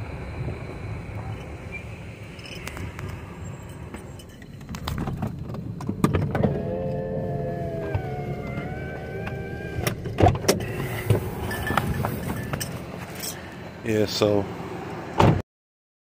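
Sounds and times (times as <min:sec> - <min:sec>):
car rumbling on dirt road: 0:00.0 - 0:15.3
power window motor whine: 0:02.6 - 0:13.0.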